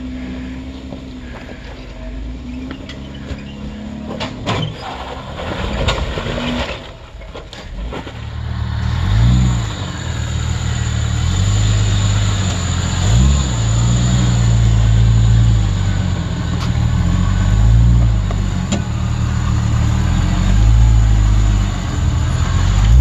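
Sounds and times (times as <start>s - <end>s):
engine running at low revs: 0.0s - 4.5s, 7.6s - 23.0s
engine revving: 8.3s - 23.0s.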